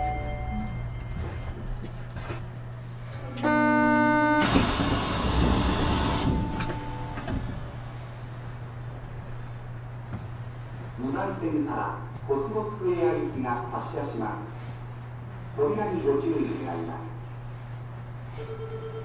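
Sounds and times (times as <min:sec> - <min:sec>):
doors sliding open: 0:00.7 - 0:09.6.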